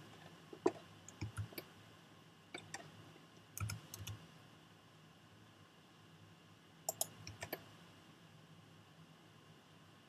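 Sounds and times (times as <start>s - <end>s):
faint steady hum: 0.0s - 10.0s
keyboard and mouse clicking: 0.6s - 1.7s, 2.6s - 2.9s, 3.6s - 4.2s, 6.9s - 7.7s.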